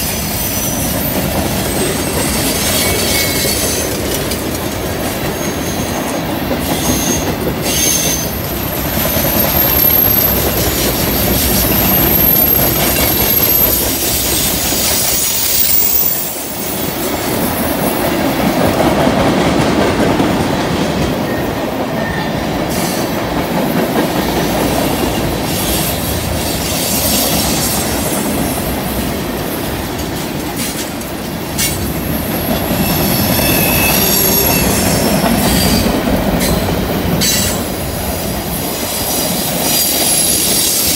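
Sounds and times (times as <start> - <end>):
rumble of freight cars rolling: 0.0 - 40.9
wheel flange squeal: 0.1 - 4.0, 6.6 - 16.6, 32.6 - 36.6.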